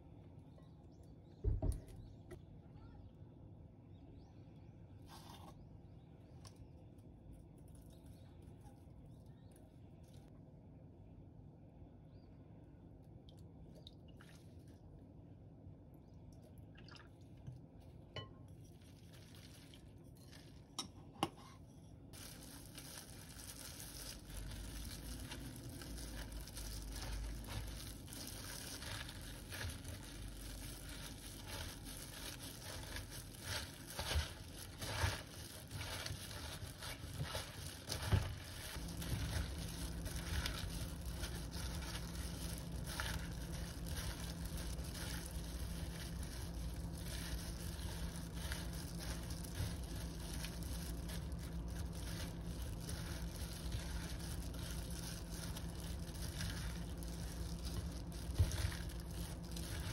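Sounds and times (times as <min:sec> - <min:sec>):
low steady hum: 0:00.0 - 0:59.9
plastic gloves crinkling: 0:17.7 - 0:21.1, 0:22.1 - 0:59.9
cabbage leaves rustling and squishing: 0:18.6 - 0:20.8, 0:22.1 - 0:59.9.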